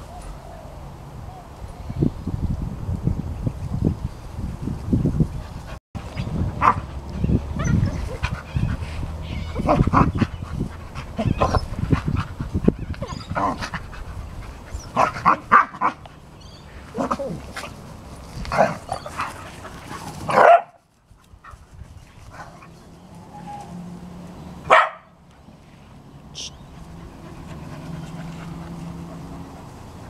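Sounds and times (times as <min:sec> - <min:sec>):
dogs barking: 0:06.5 - 0:14.1, 0:14.7 - 0:17.4, 0:20.2 - 0:20.8, 0:24.6 - 0:25.2.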